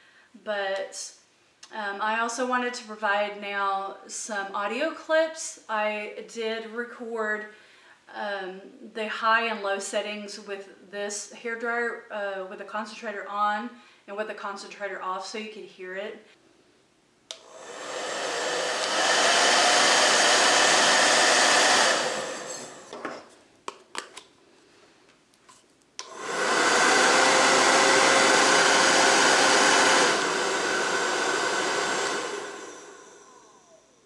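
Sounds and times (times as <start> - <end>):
hair dryer blowing: 17.3 - 23.0, 26.0 - 34.0.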